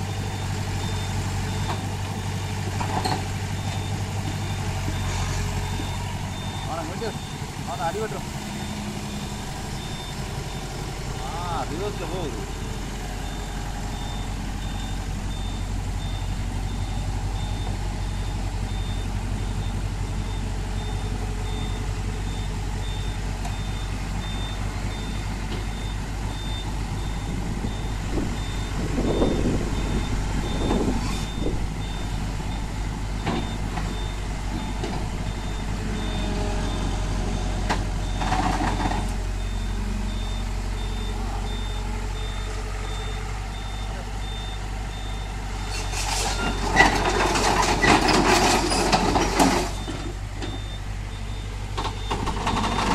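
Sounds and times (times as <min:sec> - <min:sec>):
excavator diesel engine: 0:00.0 - 0:52.9
backup alarm beeping: 0:03.5 - 0:37.4, 0:38.0 - 0:45.3, 0:49.7 - 0:52.9
steel tracks clanking: 0:45.6 - 0:50.6.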